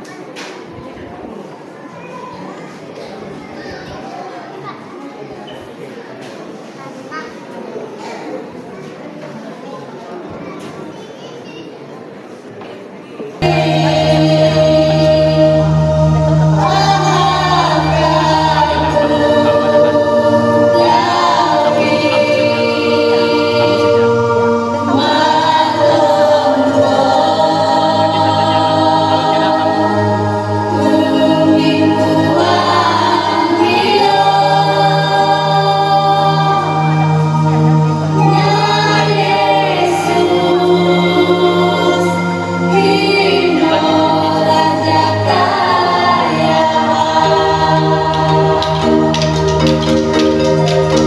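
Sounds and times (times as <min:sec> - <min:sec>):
choir singing in harmony: 0:13.4 - 0:51.0
sustained instrumental backing: 0:13.4 - 0:51.0.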